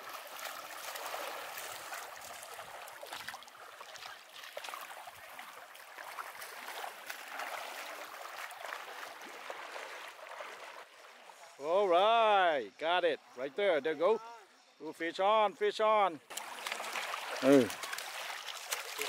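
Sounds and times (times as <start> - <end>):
small waves lapping on shore: 0.0 - 11.7, 16.2 - 19.0.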